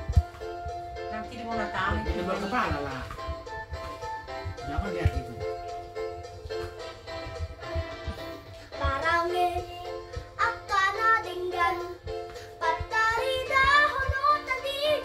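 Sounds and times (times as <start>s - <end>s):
backing music: 0.0s - 15.0s
girl singing: 8.7s - 15.0s.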